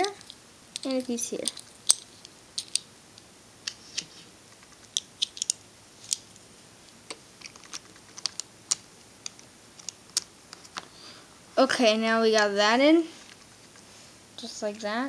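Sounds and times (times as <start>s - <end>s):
plastic puzzle pieces clicking: 4.9s - 6.2s, 7.4s - 10.3s.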